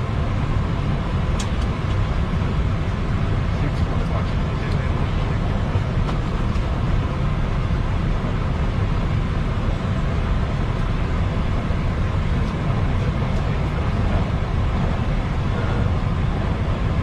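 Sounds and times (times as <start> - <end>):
aircraft engines rumbling: 0.0 - 17.0.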